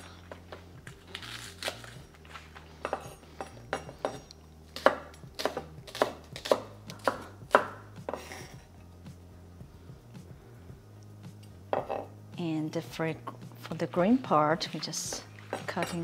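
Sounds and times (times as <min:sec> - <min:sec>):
knife chopping on wooden board: 0:04.8 - 0:08.3.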